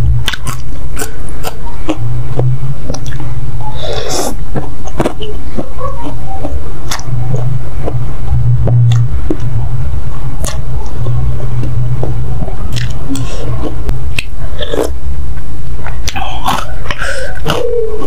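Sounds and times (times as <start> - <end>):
steady low hum: 0.0 - 18.0
wet mouth clicks: 0.2 - 3.3, 3.9 - 8.0, 8.6 - 9.5, 10.4 - 14.9.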